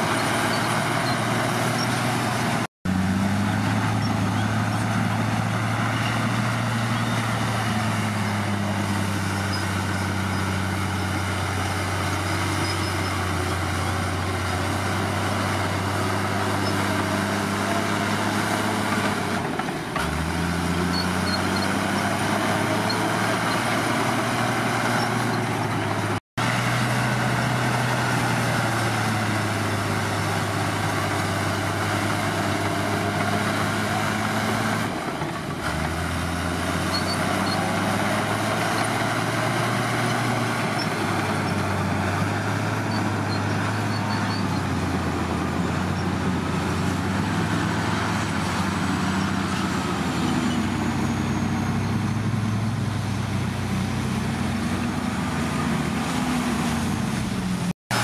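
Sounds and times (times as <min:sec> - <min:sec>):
bulldozer diesel engine running: 0:00.0 - 0:58.0.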